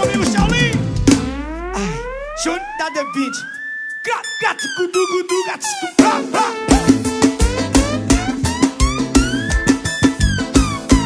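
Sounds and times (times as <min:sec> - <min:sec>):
bass note: 0:00.5 - 0:02.9, 0:06.7 - 0:11.0
synthesizer riser tone: 0:01.0 - 0:11.0.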